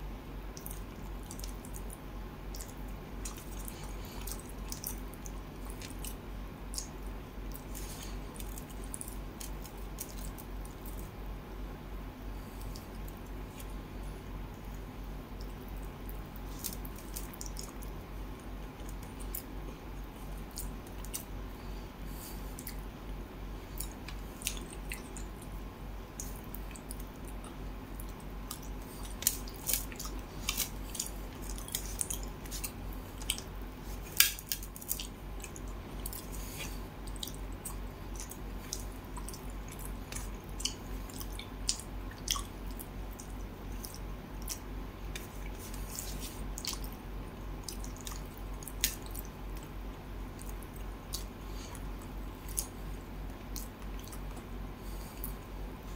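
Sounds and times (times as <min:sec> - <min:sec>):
steady low hum: 0:00.0 - 0:55.9
sharp clicks and smacks: 0:00.5 - 0:11.1, 0:26.2 - 0:36.4, 0:47.6 - 0:49.7
chewing: 0:00.6 - 0:11.1, 0:14.6 - 0:22.9, 0:23.6 - 0:55.5.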